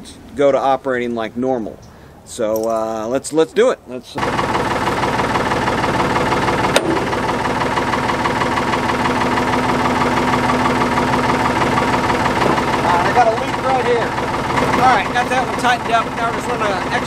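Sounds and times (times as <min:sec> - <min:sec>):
backhoe engine idling: 0:04.2 - 0:17.0.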